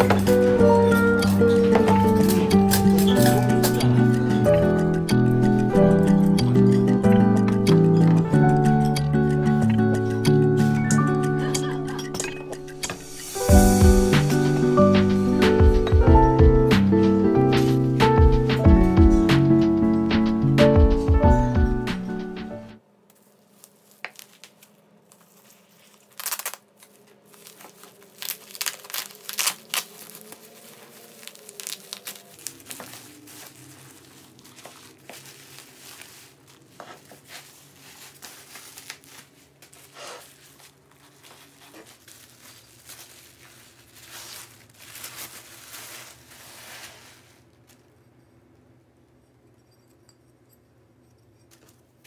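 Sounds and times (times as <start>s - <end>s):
bubble wrap and paper crinkling: 0.0s - 4.6s, 12.6s - 15.4s, 23.1s - 48.0s.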